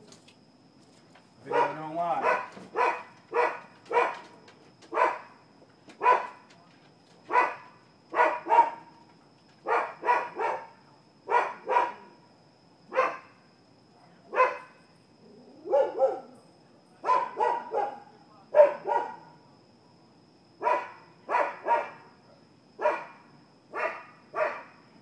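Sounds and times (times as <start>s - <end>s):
dogs barking: 1.4s - 4.3s, 4.9s - 5.4s, 6.0s - 6.5s, 7.3s - 8.9s, 9.6s - 12.1s, 12.9s - 13.3s, 14.3s - 14.8s, 15.6s - 16.4s, 17.0s - 19.4s, 20.6s - 22.0s, 22.8s - 24.8s.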